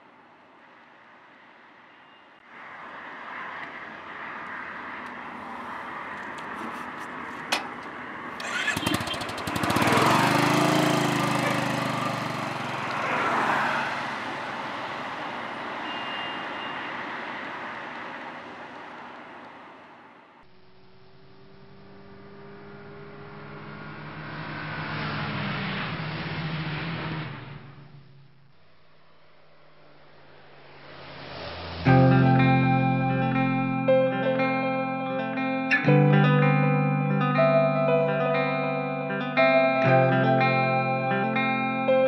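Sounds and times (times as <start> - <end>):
motorcycle engine pulling away: 8.3 - 14.1, 20.6 - 28.3.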